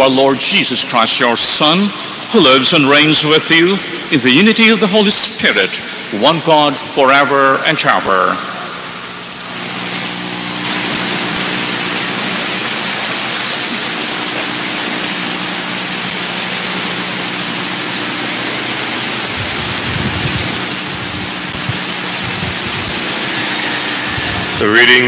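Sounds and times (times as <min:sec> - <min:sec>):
microphone hiss: 0:00.0 - 0:25.0.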